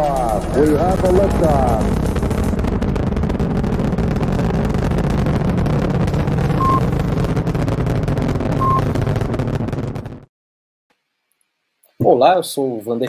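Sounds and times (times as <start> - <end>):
rocket engines roaring: 0.0 - 10.3
short beeps: 6.6 - 6.8, 8.6 - 8.9.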